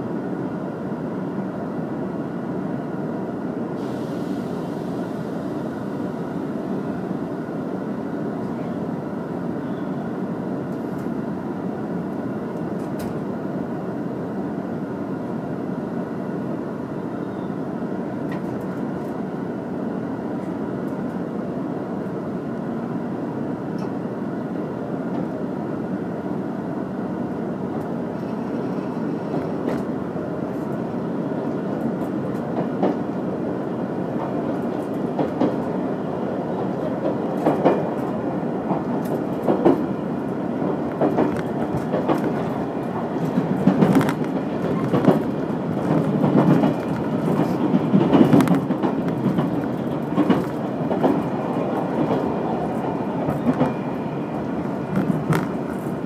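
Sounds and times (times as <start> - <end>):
train carriage rumble: 0.0 - 56.0
wheels clacking over rail joints: 40.6 - 53.9.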